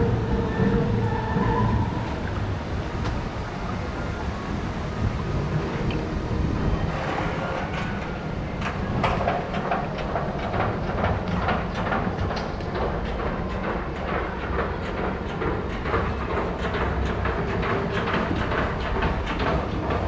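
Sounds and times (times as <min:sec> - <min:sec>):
water rushing and splashing: 0:00.0 - 0:11.2
wind rumble on microphone: 0:00.0 - 0:20.0.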